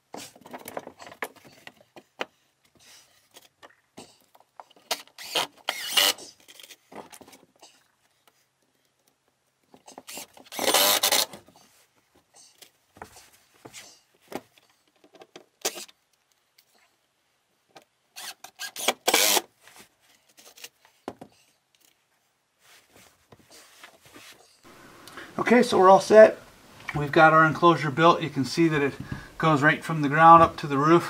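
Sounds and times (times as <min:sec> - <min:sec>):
cordless drill driving screws: 0:04.9 - 0:06.2, 0:10.1 - 0:11.4, 0:18.2 - 0:19.5.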